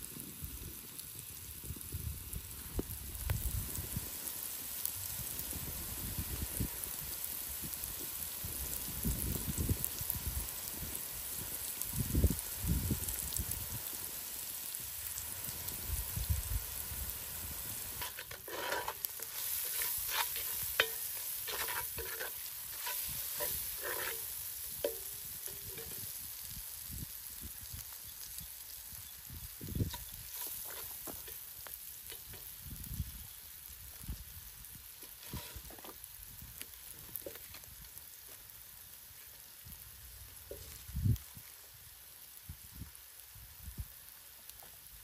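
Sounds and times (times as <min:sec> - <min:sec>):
steady high hiss: 0:00.0 - 0:45.0
utensil scraping and knocking pot: 0:18.0 - 0:26.1, 0:35.2 - 0:35.9.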